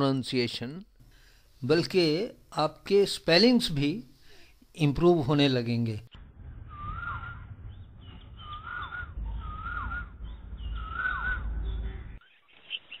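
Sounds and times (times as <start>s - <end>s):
low rumble: 6.1s - 12.2s
bird whistling call: 6.6s - 13.0s.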